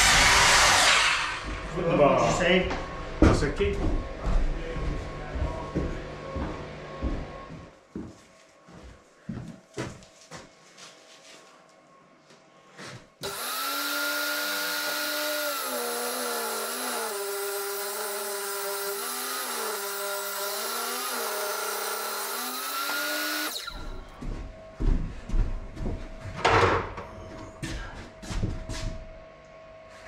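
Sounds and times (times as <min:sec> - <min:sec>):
table saw cutting wood: 0:00.0 - 0:02.2, 0:13.2 - 0:24.0.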